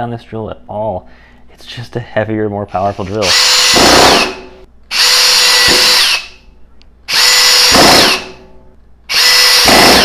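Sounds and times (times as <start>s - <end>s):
drill driving screws into wood: 3.1s - 6.4s, 7.1s - 8.4s, 9.1s - 10.0s.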